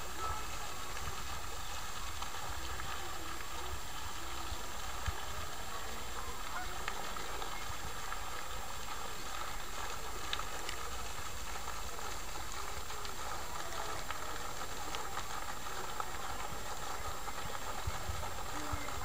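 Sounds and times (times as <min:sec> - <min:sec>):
faint ticks: 0:00.0 - 0:19.0
fountain splashing into water: 0:00.0 - 0:19.0.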